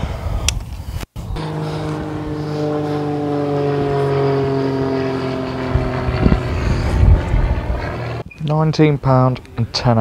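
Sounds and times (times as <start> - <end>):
engine drone: 1.2 - 8.3.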